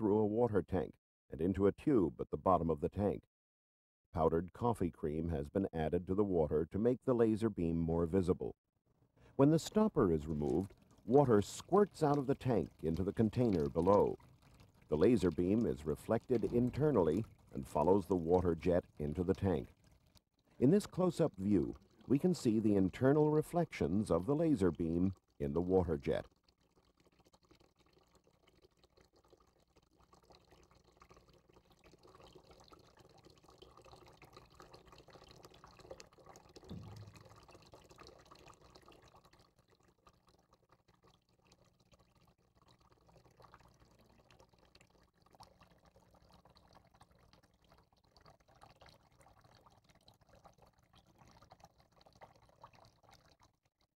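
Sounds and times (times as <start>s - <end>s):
water jet splashing into container: 9.4s - 26.3s, 35.9s - 39.0s
low thump: 36.7s - 37.2s.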